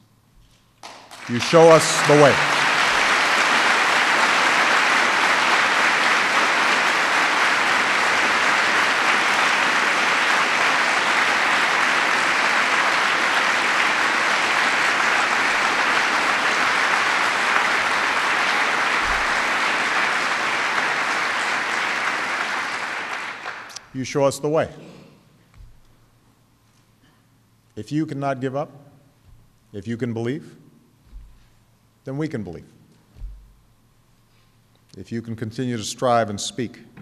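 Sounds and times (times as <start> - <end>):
audience applauding: 0.8 - 23.8.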